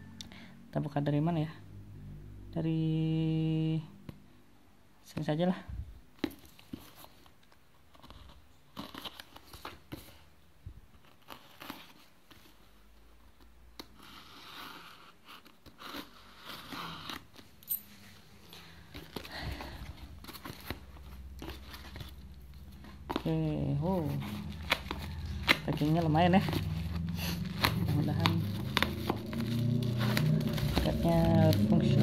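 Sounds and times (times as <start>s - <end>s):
cardboard flaps scraping: 18.8s - 32.0s
tape tearing off cardboard: 24.0s - 32.0s.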